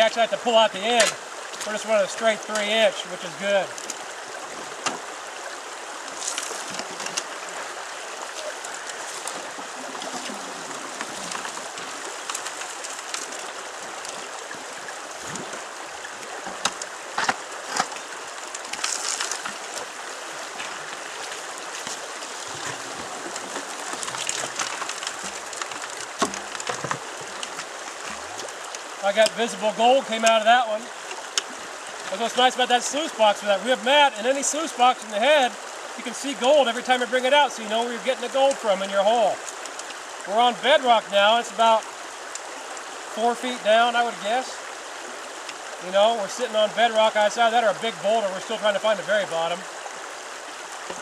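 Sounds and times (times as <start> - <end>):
river running over rocks: 0.0 - 51.0
splashes and knocks in water: 8.3 - 15.7, 16.3 - 29.4.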